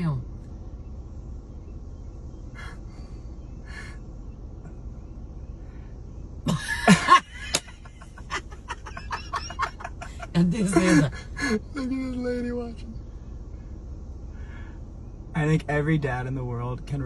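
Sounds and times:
steady low hum: 0:00.0 - 0:17.0
person laughing: 0:06.5 - 0:11.7.

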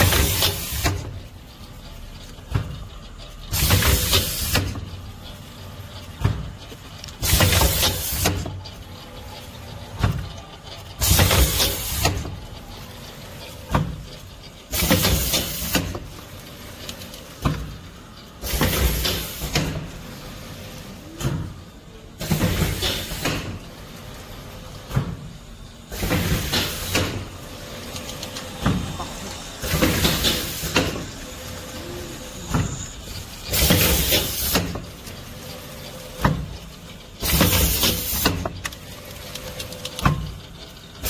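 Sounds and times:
steady machine hum: 0:00.0 - 0:41.0
machine hiss: 0:03.5 - 0:04.8, 0:07.2 - 0:08.5, 0:11.0 - 0:12.3, 0:14.7 - 0:16.0, 0:28.4 - 0:35.7, 0:37.2 - 0:38.4.

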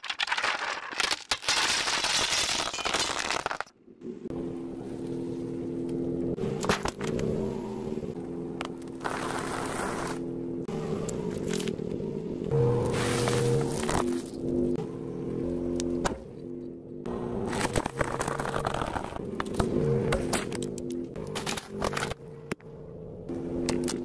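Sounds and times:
steady low hum: 0:03.9 - 0:24.0.

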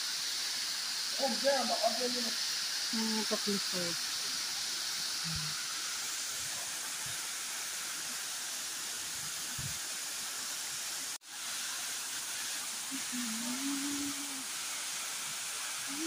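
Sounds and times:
waterfall pouring onto rocks: 0:00.0 - 0:16.0.

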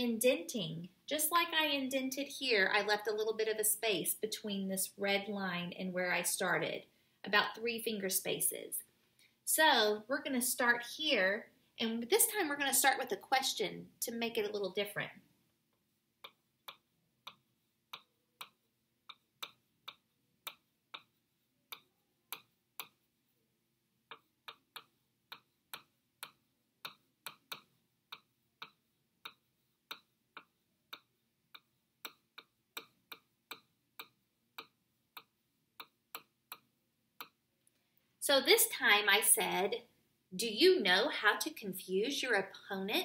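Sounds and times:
stylus tapping on touchscreen: 0:16.2 - 0:23.1, 0:24.0 - 0:37.8.

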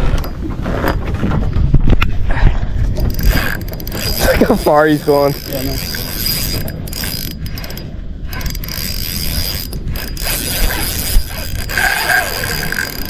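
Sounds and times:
fishing reel ratchet clicking: 0:03.1 - 0:13.0.

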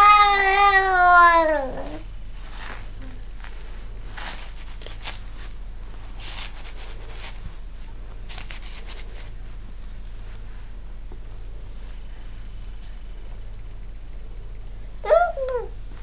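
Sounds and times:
low electrical hum: 0:00.0 - 0:16.0
soft rustling noises: 0:01.8 - 0:13.5.

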